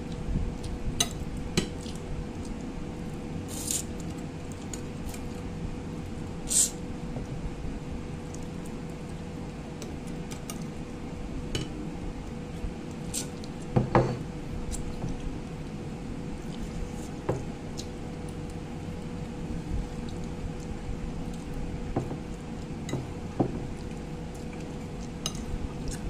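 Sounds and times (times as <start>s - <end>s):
steady low hum: 0.0s - 26.0s
wet chewing sounds: 23.6s - 26.0s.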